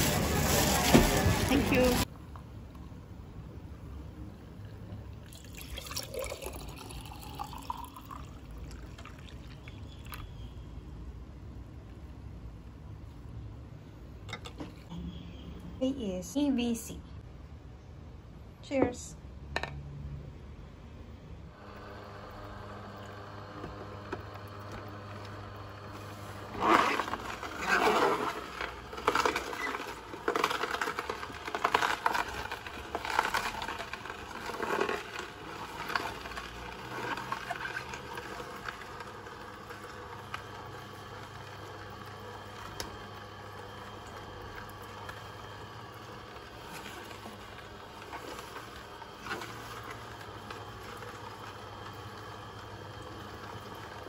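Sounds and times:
juicer motor hum: 0.0s - 3.0s, 4.0s - 10.6s, 21.5s - 54.0s.

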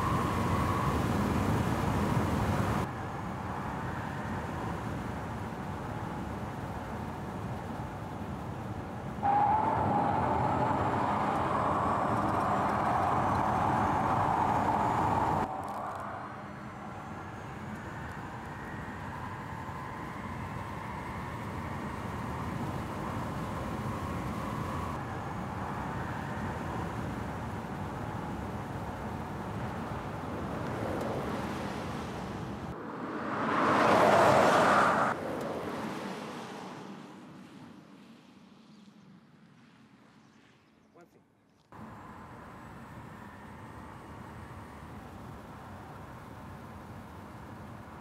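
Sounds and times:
electric drivetrain whine: 9.2s - 31.7s.

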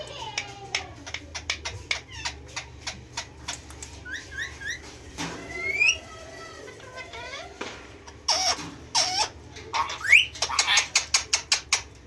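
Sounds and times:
parakeets chattering: 0.0s - 12.0s.

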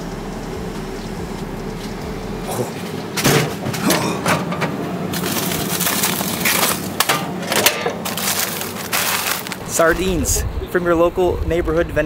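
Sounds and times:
steady low hum: 0.0s - 12.0s
plastic bag crinkling: 5.1s - 7.0s, 8.0s - 9.8s.

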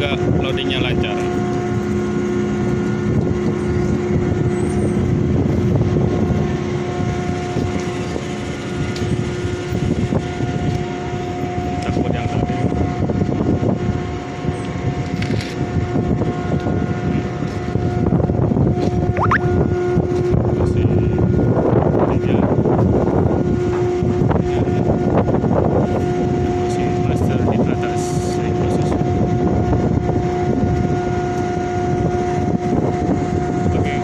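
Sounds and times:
ship machinery hum: 0.0s - 21.7s
wind noise on microphone: 0.0s - 34.0s.

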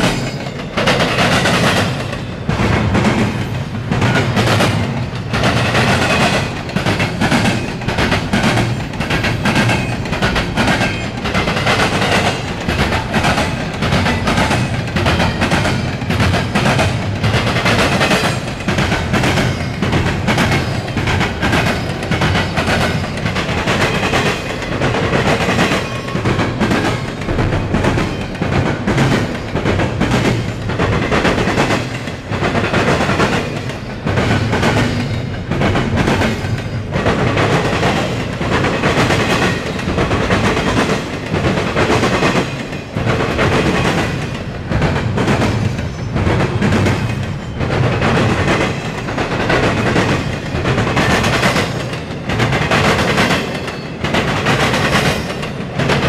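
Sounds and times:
train wheels clattering: 0.0s - 56.0s.

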